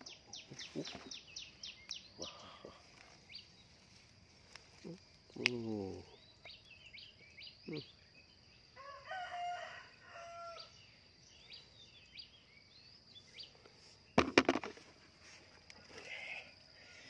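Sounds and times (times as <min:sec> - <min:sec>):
high insect whine: 0:00.0 - 0:17.0
small birds chirping: 0:00.0 - 0:17.0
rooster crowing: 0:08.8 - 0:10.8
clatter of sharp knocks: 0:14.2 - 0:14.8.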